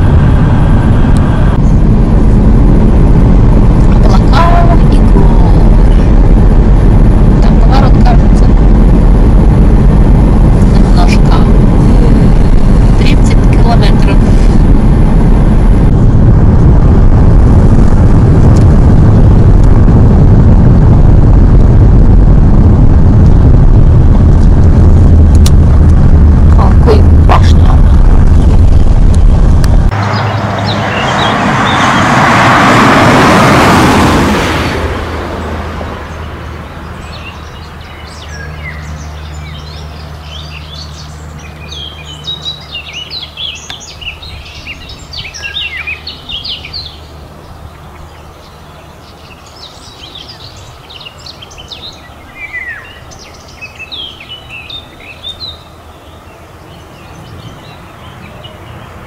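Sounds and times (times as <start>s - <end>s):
broad rushing noise: 0.0s - 59.0s
steady low hum: 0.0s - 59.0s
small birds chirping: 30.0s - 32.1s, 36.1s - 59.0s.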